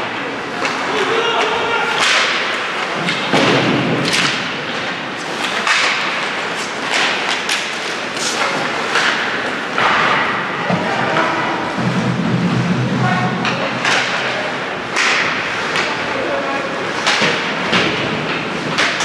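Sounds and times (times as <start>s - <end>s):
hockey sticks and puck knocking: 0.6s - 12.0s, 13.4s - 16.1s, 16.9s - 19.0s
skates scraping on ice: 4.0s - 19.0s.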